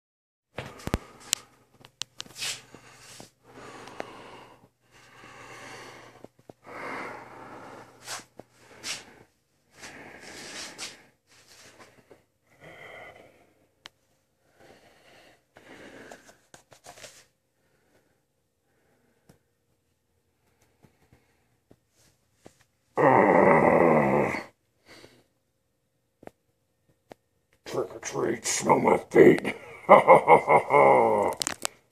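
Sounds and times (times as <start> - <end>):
person breathing heavily: 0.6 - 1.7, 2.3 - 16.5, 23.0 - 25.4.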